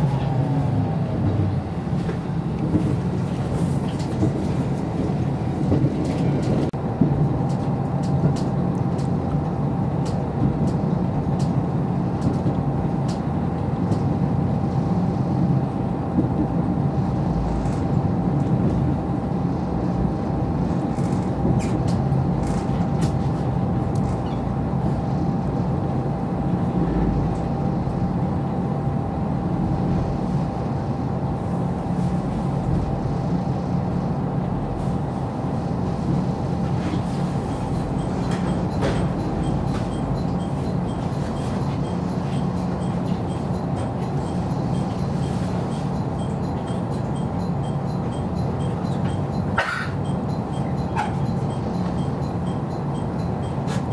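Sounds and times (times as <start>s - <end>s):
diesel railcar engine running: 0.0s - 53.9s
thin steady whine: 23.5s - 53.9s.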